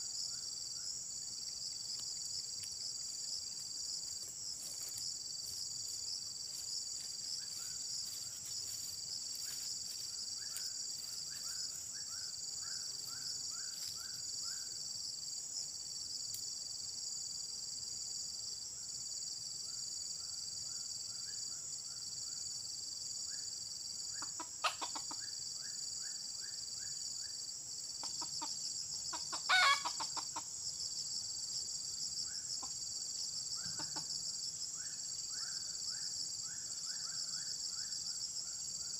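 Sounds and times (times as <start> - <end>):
high insect drone: 0.0 - 38.9
rooster crowing: 29.5 - 30.0.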